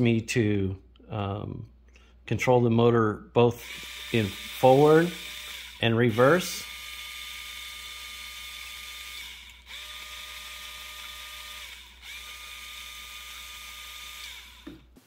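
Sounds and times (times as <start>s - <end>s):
small motor whining: 3.6s - 15.0s.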